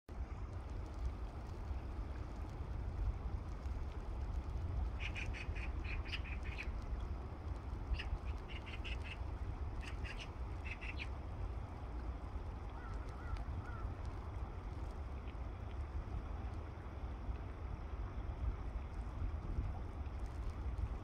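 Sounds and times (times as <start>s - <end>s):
steady low rumble: 0.1s - 21.0s
waterbirds calling: 4.8s - 6.8s, 7.8s - 11.3s, 12.7s - 14.0s
faint bird chirps: 5.0s - 6.7s, 8.0s - 9.2s, 9.8s - 11.1s.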